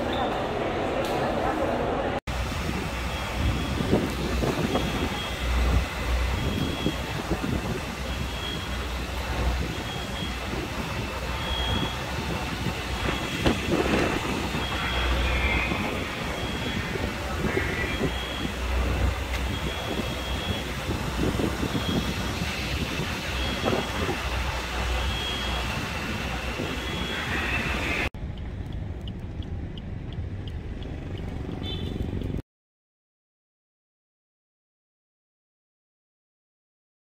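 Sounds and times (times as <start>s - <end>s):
fire truck engine rumbling: 0.0s - 32.4s
short high electronic beeps: 11.2s - 13.4s, 14.4s - 20.8s, 23.3s - 28.1s.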